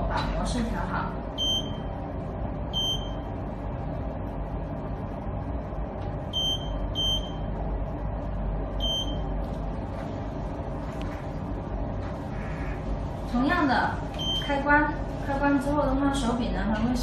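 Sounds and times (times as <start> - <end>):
steady low hum: 0.0 - 17.0
short electronic beeps: 1.4 - 1.9, 2.7 - 3.2, 6.3 - 7.4, 8.8 - 9.3, 14.2 - 14.5.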